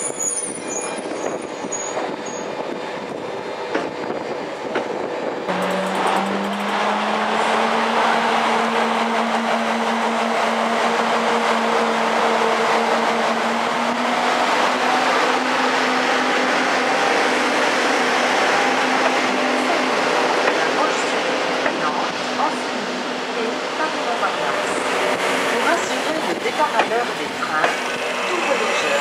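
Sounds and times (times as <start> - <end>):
moving train rumble and hiss: 0.0 - 29.0
train traction whine: 0.0 - 29.0.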